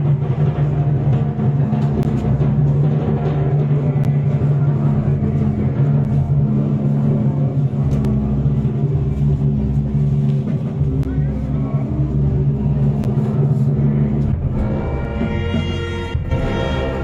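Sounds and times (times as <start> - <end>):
engine humming steadily: 0.0 - 17.0.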